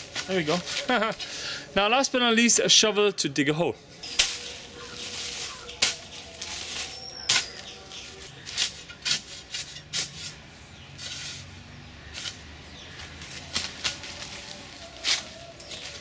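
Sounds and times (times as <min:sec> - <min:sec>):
gritty scraping of soil: 0:00.0 - 0:01.8, 0:03.9 - 0:16.0
shovel striking hard earth: 0:04.0 - 0:10.4, 0:12.1 - 0:14.3.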